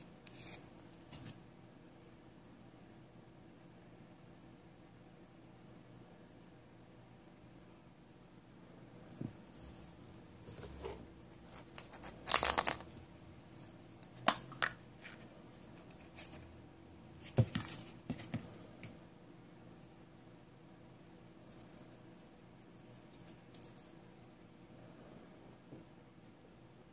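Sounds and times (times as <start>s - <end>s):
crinkly rustling: 10.6s - 13.0s.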